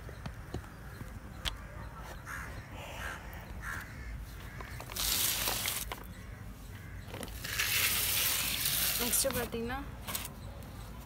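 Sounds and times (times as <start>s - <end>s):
crow cawing: 1.5s - 5.0s, 6.1s - 7.2s
plants rustling: 4.4s - 6.1s, 7.1s - 10.4s.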